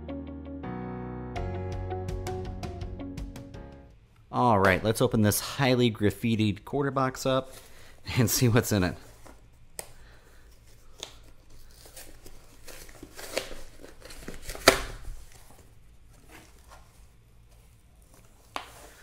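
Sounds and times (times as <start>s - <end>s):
cardboard flaps crinkling: 8.8s - 9.7s, 10.4s - 19.0s
cardboard and tape ripping: 10.8s - 17.2s.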